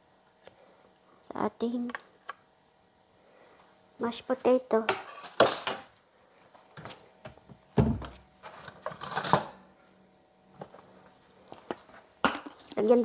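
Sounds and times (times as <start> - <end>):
knock with low thud: 7.8 - 8.1
cookware clatter: 8.8 - 9.8.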